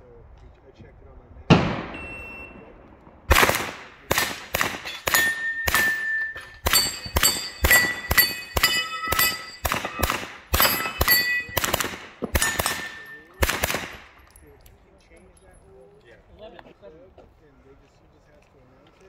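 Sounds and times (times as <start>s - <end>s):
gunshots: 1.5s - 14.2s
steel plates ringing: 4.8s - 11.7s, 12.4s - 13.4s.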